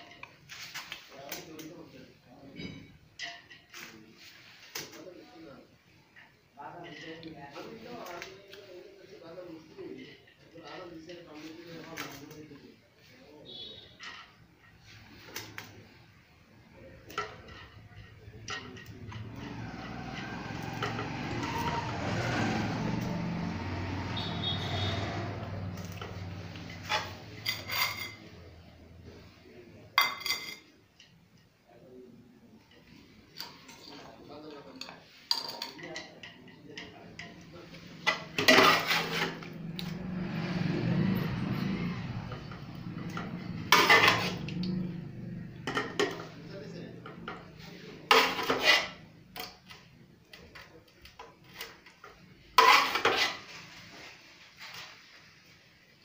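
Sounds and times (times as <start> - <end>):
steel bowls and spoon clinking: 13.5 - 29.4, 30.0 - 31.2, 32.8 - 53.8.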